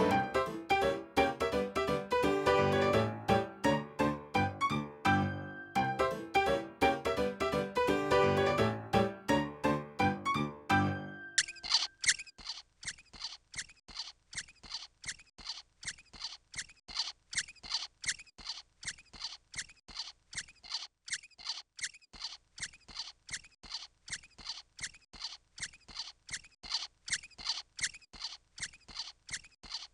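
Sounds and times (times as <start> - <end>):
cartoon squeaky footsteps: 11.4 - 29.9.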